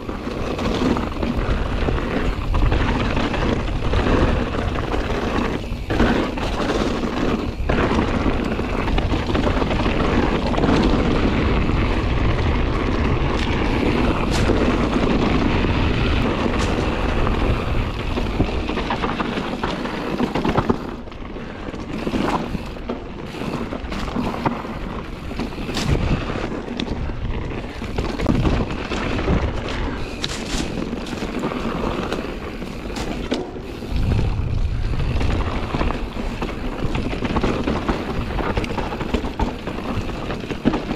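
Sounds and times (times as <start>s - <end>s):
bike knocking and rattling: 0.0s - 40.9s
bike tyres rolling on dirt: 0.0s - 40.9s
wind rushing over microphone: 0.0s - 40.9s.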